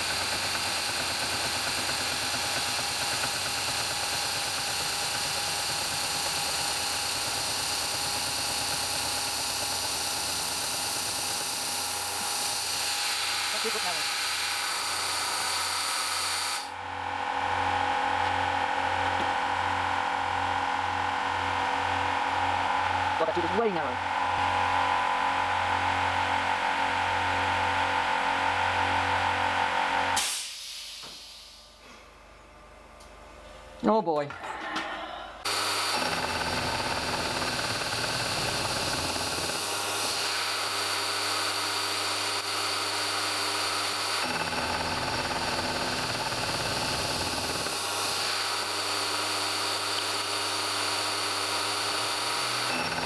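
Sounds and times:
milling machine spindle whirring: 0.0s - 16.8s, 35.5s - 53.0s
electric motor humming: 0.0s - 30.1s, 35.4s - 53.0s.

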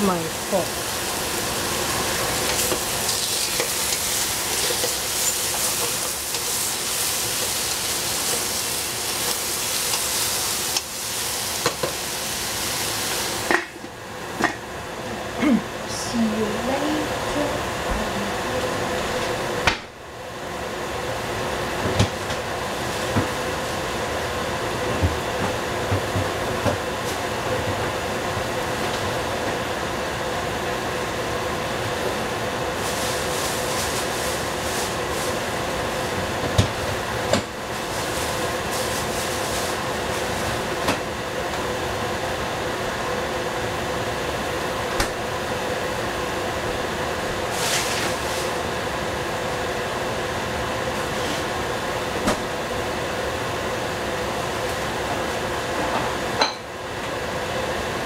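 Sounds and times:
food cooking in a pan: 0.0s - 14.9s, 20.3s - 58.0s
hissing sizzle: 0.0s - 14.9s, 20.3s - 25.8s, 26.4s - 55.7s
steady mechanical hum: 0.0s - 58.0s.

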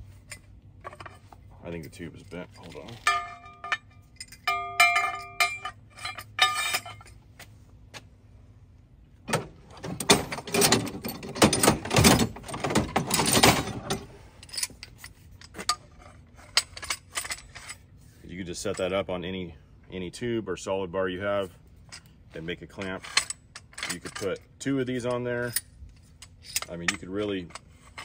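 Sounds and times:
metal bars and tools clattering: 0.0s - 7.2s, 9.3s - 17.9s, 18.5s - 19.0s, 21.8s - 28.0s
metal clamp clinking on steel tube: 0.2s - 7.2s, 21.8s - 28.0s.

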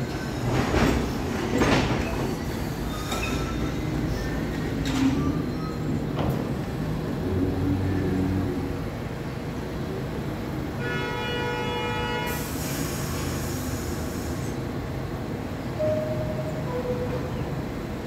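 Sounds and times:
train low rumble: 0.0s - 18.0s
air hiss: 12.3s - 14.6s.

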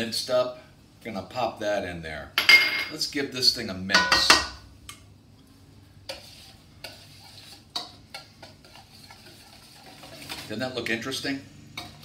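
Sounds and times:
whisk stirring thick liquid: 6.0s - 12.0s.

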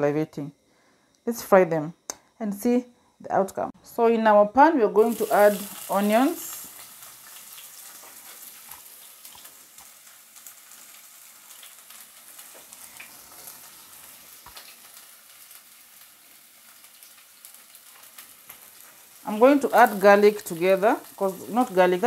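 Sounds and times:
onions sizzling in oil: 4.9s - 22.0s
small crackles: 5.5s - 22.0s.

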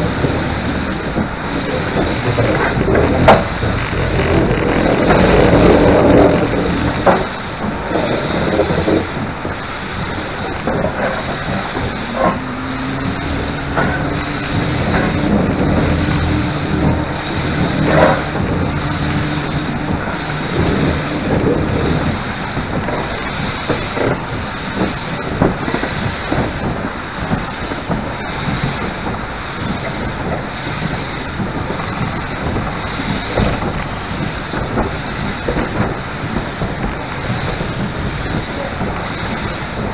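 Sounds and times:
steam locomotive hissing rhythmically: 0.0s - 39.9s
train wheels clicking on track: 0.0s - 39.9s.

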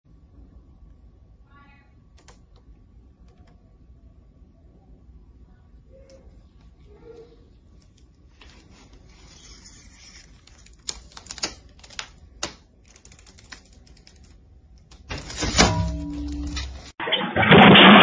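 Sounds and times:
plastic film crackling as peeled: 7.9s - 16.9s
plastic film snaps: 10.0s - 16.9s.

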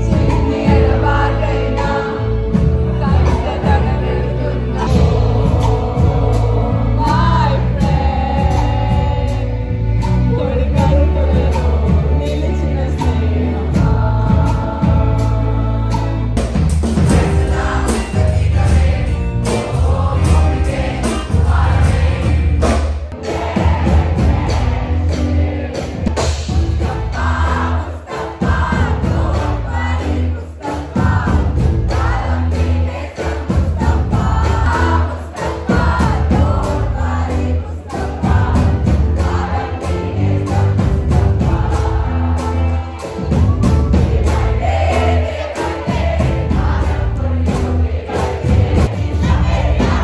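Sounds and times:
person singing: 0.0s - 16.4s
acoustic guitar: 0.0s - 50.0s
crowd singing along: 0.0s - 50.0s
live band playing: 0.0s - 50.0s
steady bass: 0.0s - 50.0s
steady drum beat: 0.0s - 50.0s.

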